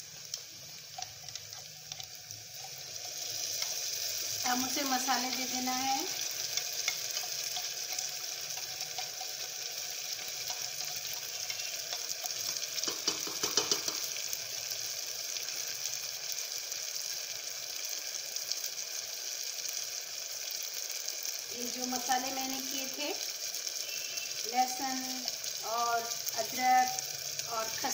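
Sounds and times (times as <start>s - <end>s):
onions sizzling in oil: 0.0s - 27.9s
stirring clatter: 0.9s - 14.1s.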